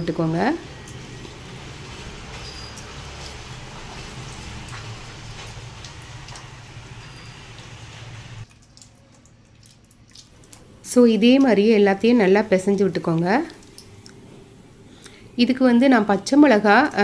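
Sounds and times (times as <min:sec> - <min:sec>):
steady low hum: 0:00.0 - 0:16.3
hands squishing wet blood: 0:08.4 - 0:10.6.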